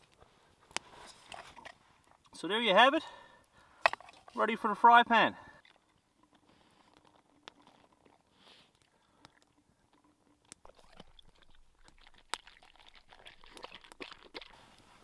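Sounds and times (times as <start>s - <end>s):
dog crunching kibble: 6.2s - 8.3s, 9.3s - 15.0s
water pouring into bowl: 10.6s - 14.7s.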